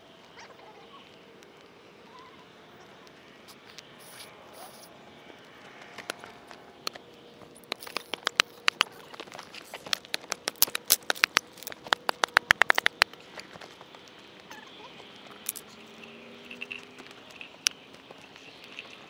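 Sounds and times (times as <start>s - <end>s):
sticks snapping: 7.6s - 13.6s.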